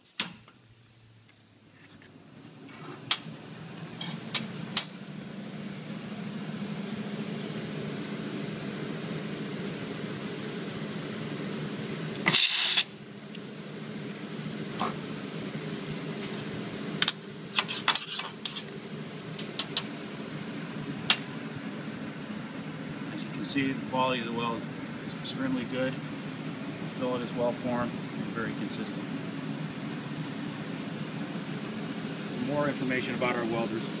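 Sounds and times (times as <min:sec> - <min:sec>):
steady hum: 0:00.0 - 0:34.0
stud welder arc burst: 0:12.2 - 0:13.0.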